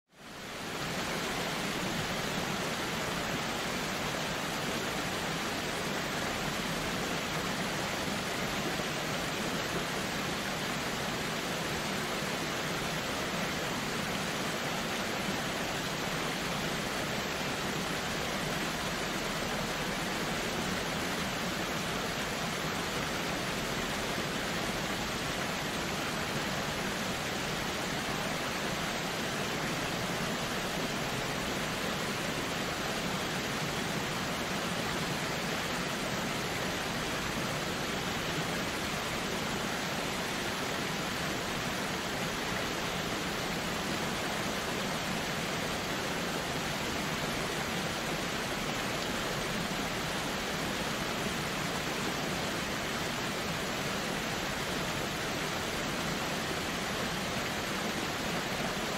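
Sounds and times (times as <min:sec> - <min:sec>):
waterfall rushing: 0:00.2 - 0:58.9.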